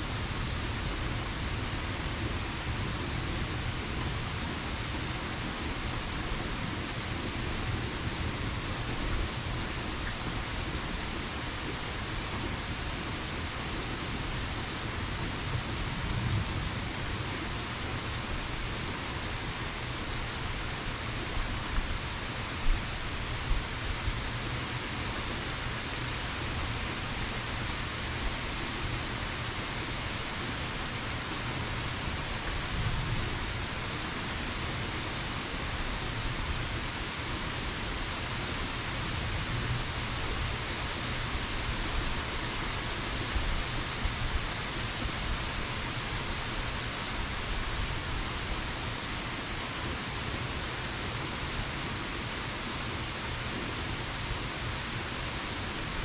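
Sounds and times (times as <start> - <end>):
steady rain hiss: 0.0 - 56.0.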